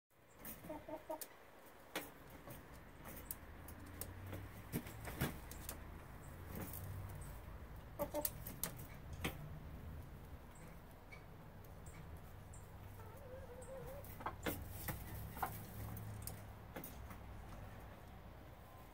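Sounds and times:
hen clucking: 0.3 - 9.1, 10.4 - 16.4.

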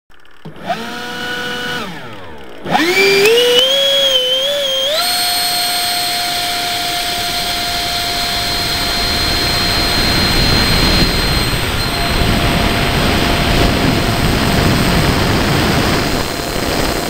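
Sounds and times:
model jet engine whine: 0.1 - 17.0
wind and wheel rush: 5.0 - 17.0.

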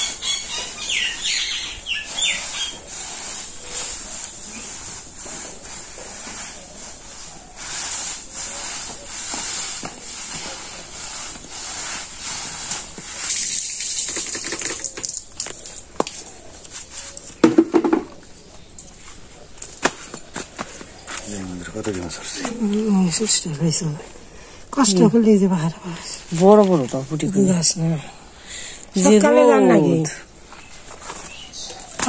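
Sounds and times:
bird chirps: 0.0 - 2.9
steady high-pitched hiss: 0.0 - 32.0
rustling or splashing: 0.2 - 17.5.

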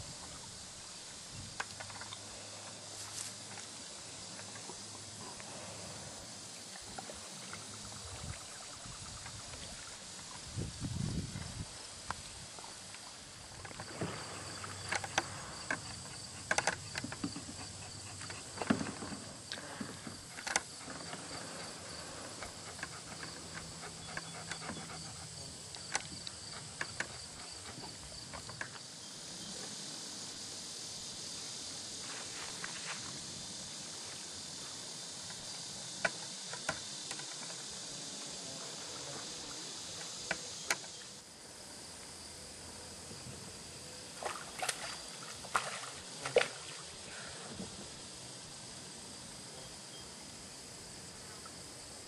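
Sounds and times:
steady outdoor hiss: 0.0 - 52.0
small water splashes: 44.2 - 47.1.

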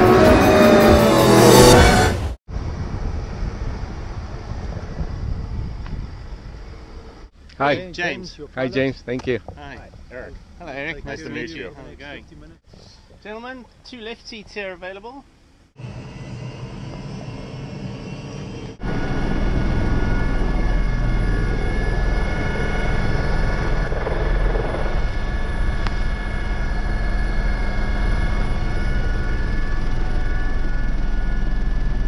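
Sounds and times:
helicopter turbine and rotor: 15.7 - 32.0.

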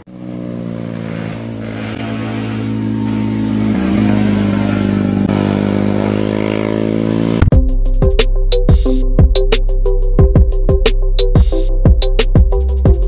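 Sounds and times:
motorcycle engine running: 0.0 - 7.8.

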